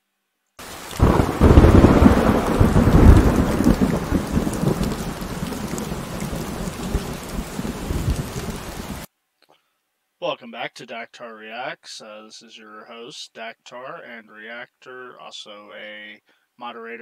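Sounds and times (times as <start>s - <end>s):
thunder crack and rumble: 1.0s - 9.0s.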